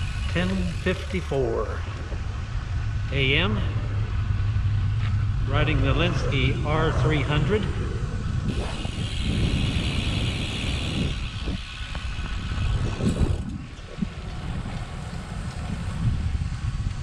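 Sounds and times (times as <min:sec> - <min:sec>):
steady high hiss: 0:00.0 - 0:13.4
wind buffeting microphone: 0:00.0 - 0:17.0.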